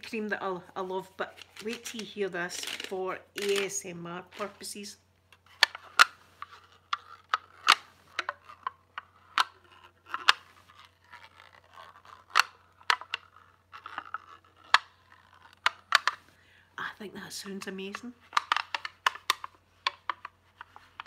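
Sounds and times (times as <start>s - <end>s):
faint scratching: 0.0s - 16.4s.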